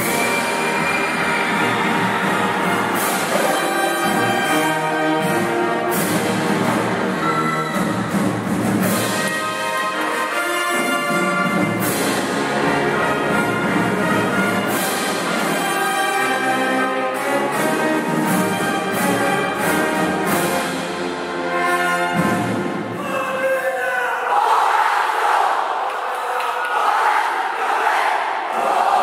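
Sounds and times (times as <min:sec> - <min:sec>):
drum and cymbal hits: 0:00.0 - 0:09.8, 0:14.6 - 0:15.8
brass chords: 0:00.0 - 0:23.0.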